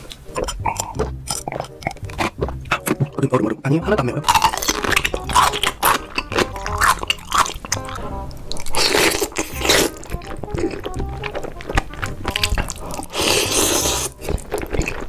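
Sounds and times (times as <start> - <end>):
crunchy bites and chewing: 0.0 - 3.3, 4.2 - 15.0
background music: 0.0 - 15.0
slurping noodles: 12.0 - 15.0.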